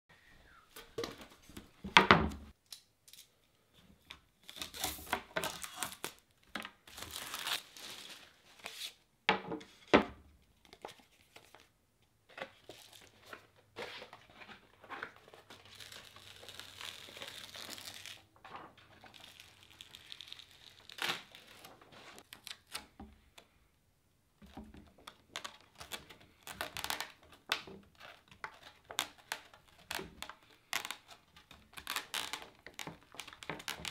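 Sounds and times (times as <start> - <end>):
paper backing crinkling and tearing: 6.8 - 8.9, 12.6 - 23.0, 25.0 - 33.9
grip tape being unrolled: 6.9 - 7.7, 15.6 - 18.3, 27.9 - 33.9.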